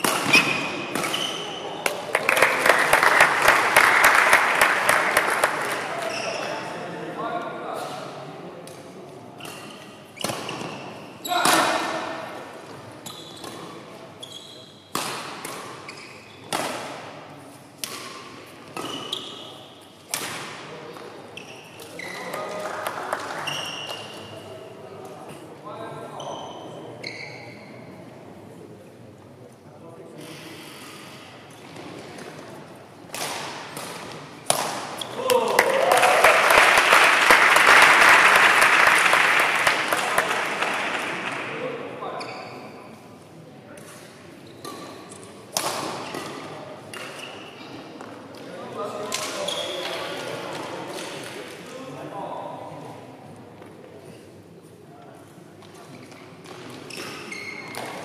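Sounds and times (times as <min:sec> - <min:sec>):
rackets striking shuttlecock: 0:00.0 - 0:01.3, 0:14.9 - 0:15.8, 0:33.1 - 0:35.2
spectators applauding: 0:02.1 - 0:05.9, 0:35.4 - 0:41.5.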